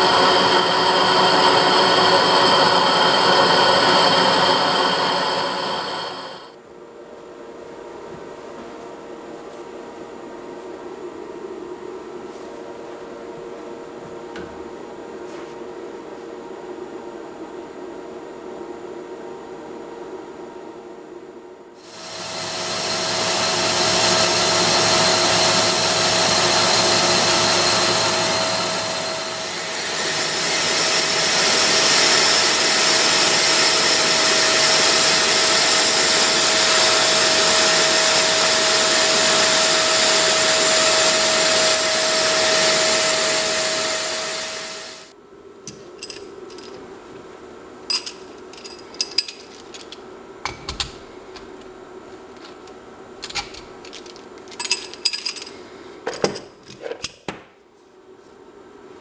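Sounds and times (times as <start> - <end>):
lathe machine whine: 0.0 - 6.6, 21.8 - 45.1.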